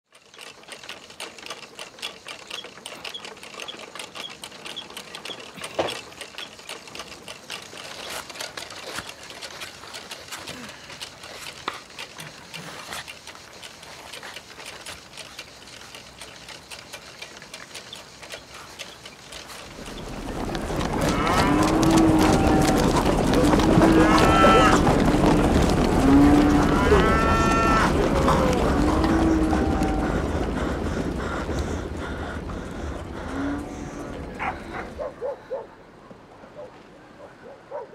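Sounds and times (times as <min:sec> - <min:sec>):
mechanical clicking and rattling: 0:00.0 - 0:35.0
cattle herd noise: 0:02.2 - 0:35.8
cow mooing: 0:20.9 - 0:30.3, 0:33.3 - 0:34.7.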